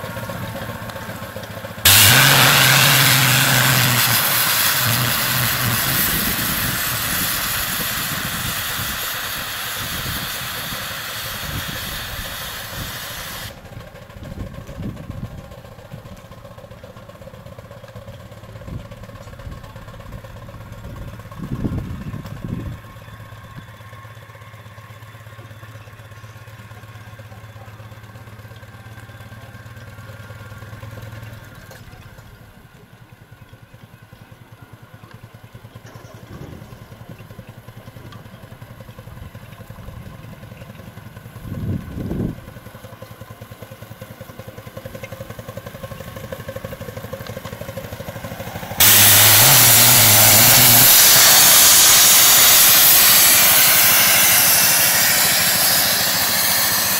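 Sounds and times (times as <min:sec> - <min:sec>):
model steam engine pulsing: 0:00.0 - 0:22.2, 0:34.4 - 0:56.9
steam venting hiss: 0:01.9 - 0:13.6, 0:48.4 - 0:56.9.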